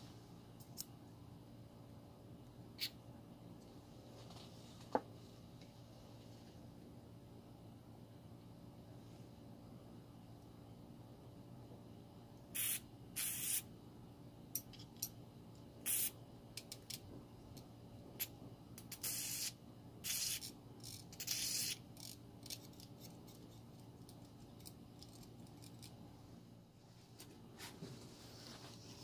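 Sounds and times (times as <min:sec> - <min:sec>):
aerosol spray hissing: 0:12.6 - 0:13.6, 0:15.8 - 0:16.2, 0:18.9 - 0:20.5.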